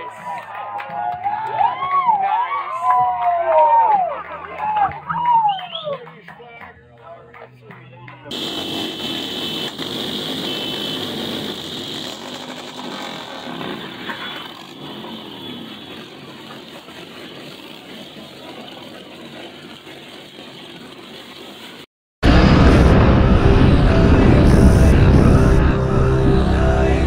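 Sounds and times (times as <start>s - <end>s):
motorcycle engine running: 8.3s - 20.9s, 22.2s - 27.0s.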